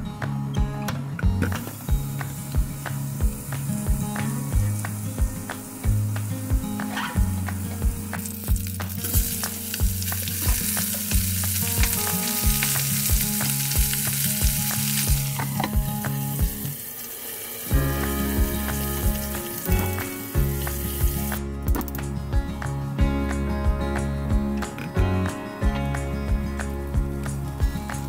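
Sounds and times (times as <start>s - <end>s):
background music with steady beat: 0.0s - 16.8s, 17.4s - 28.0s
meat sizzling in frying pan: 1.6s - 21.4s.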